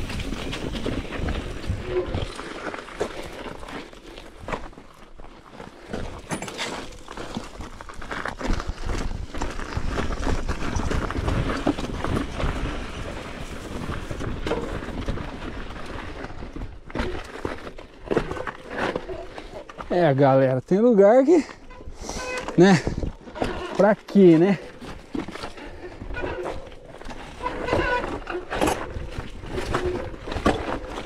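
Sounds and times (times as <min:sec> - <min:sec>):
wind rumbling on microphone: 0:00.0 - 0:02.7, 0:07.9 - 0:16.8
bike clattering over rough trail: 0:00.0 - 0:31.0.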